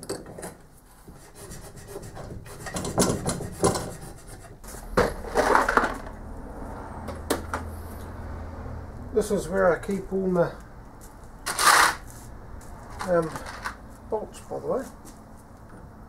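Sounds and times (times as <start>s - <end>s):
rough scraping rush: 2.4s - 7.0s, 11.5s - 13.8s
tools clattering on bench: 13.0s - 13.8s.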